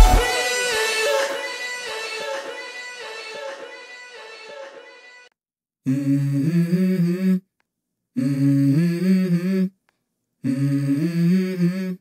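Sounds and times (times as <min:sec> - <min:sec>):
person humming a melody: 0:05.9 - 0:07.4, 0:08.2 - 0:09.7, 0:10.4 - 0:12.0.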